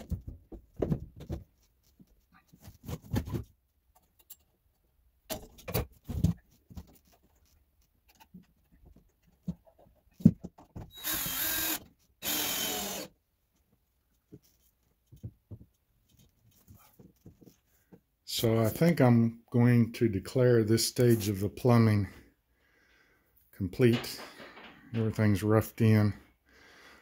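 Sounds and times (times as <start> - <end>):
cordless drill whirring: 10.9 - 13.1.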